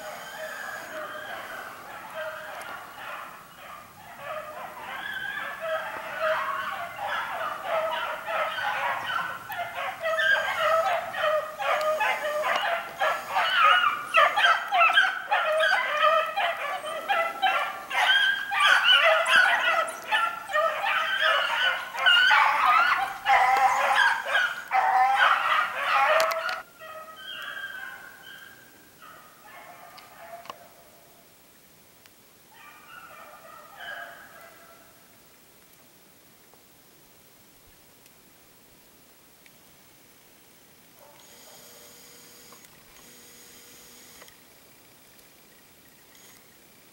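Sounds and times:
pack of hounds baying: 0:00.0 - 0:30.8, 0:32.6 - 0:34.8.

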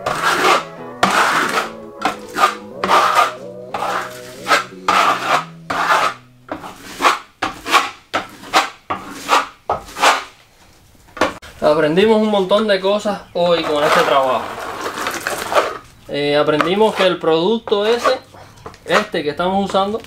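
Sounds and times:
background music: 0:00.0 - 0:07.1
trowel scraping adhesive on floor: 0:00.0 - 0:10.4, 0:13.6 - 0:15.8.

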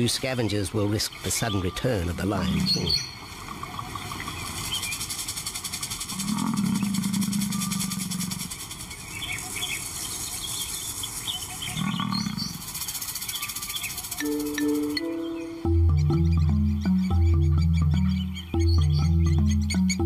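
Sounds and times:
lion growling: 0:06.1 - 0:08.5, 0:11.7 - 0:12.6.

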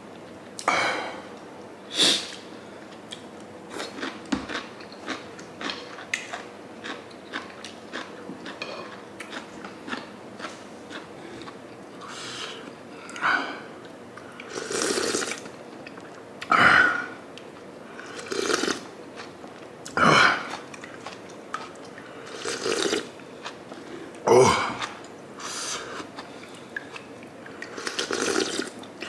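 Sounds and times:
faint chewing: 0:02.9 - 0:16.2, 0:17.3 - 0:25.2
slurps of hot broth: 0:14.5 - 0:15.4, 0:18.0 - 0:18.8, 0:22.3 - 0:23.1, 0:27.7 - 0:28.7.

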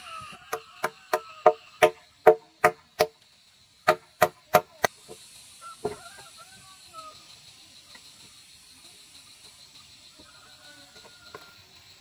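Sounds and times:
hammer strikes: 0:00.5 - 0:03.2, 0:03.8 - 0:04.9.

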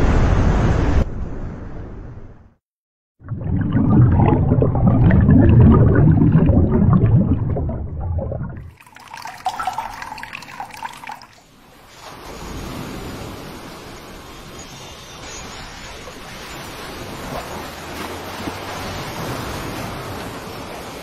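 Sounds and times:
water trickling and dripping: 0:03.2 - 0:11.5
water rushing into metal mug: 0:03.3 - 0:11.4.

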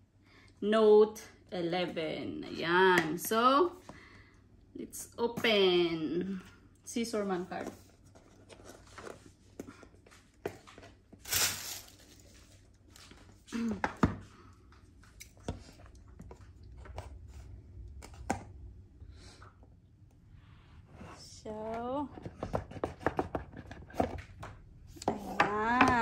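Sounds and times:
cardboard wrapping rustle: 0:11.2 - 0:13.3.

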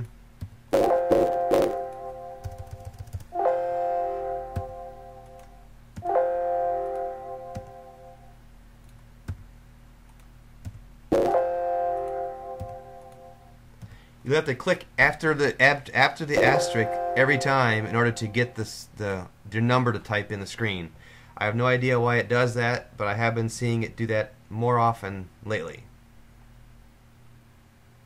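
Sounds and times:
keyboard and mouse clicks: 0:00.4 - 0:03.3, 0:07.5 - 0:07.8, 0:12.0 - 0:13.2
computer alert chime: 0:00.8 - 0:02.8, 0:03.4 - 0:05.3, 0:11.1 - 0:13.4, 0:16.4 - 0:18.6.

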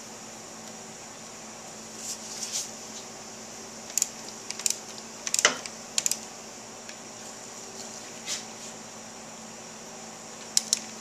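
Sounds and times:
wrench clicking on bolt: 0:03.9 - 0:06.2.

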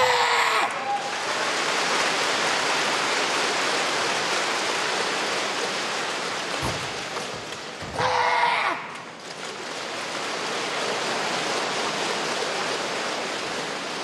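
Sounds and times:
dull thud: 0:06.6 - 0:08.2.

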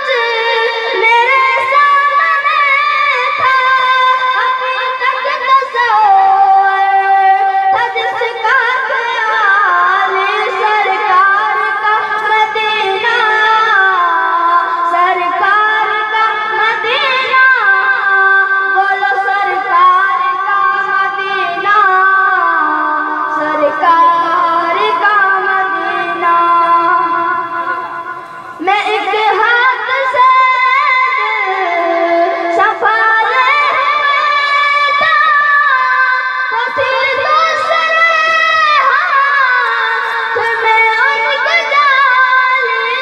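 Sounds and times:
person singing through loudspeaker: 0:00.0 - 0:43.0.

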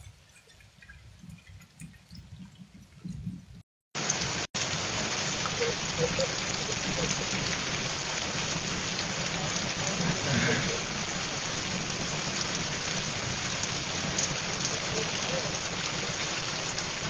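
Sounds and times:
scattered drips: 0:00.0 - 0:17.0
heavy rain: 0:04.0 - 0:17.0.

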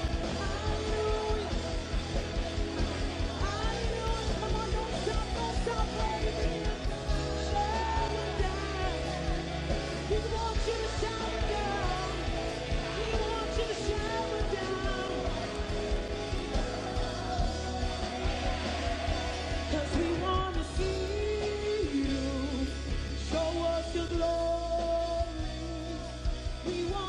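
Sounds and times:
woman singing into microphone: 0:00.0 - 0:02.1, 0:03.3 - 0:18.4
bass changing chords: 0:00.0 - 0:27.0
worship band playing: 0:00.0 - 0:27.0.

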